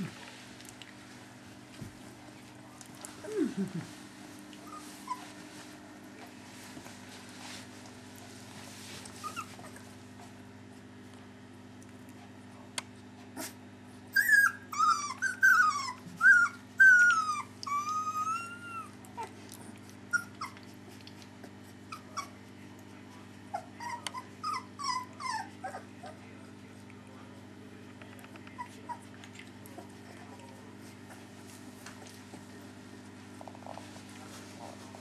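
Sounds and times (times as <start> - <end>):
puppies whimpering: 4.6 - 5.5, 9.2 - 9.9, 14.1 - 22.5, 23.5 - 26.3, 28.4 - 31.7.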